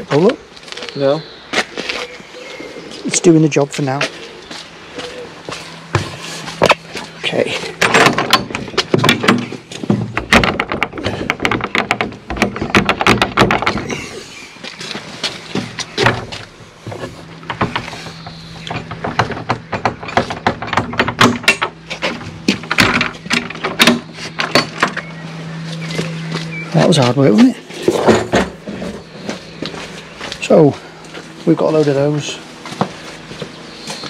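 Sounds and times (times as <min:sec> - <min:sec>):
low hum: 0:00.0 - 0:34.0
wooden gate rattling and knocking: 0:07.7 - 0:14.1, 0:15.6 - 0:25.0.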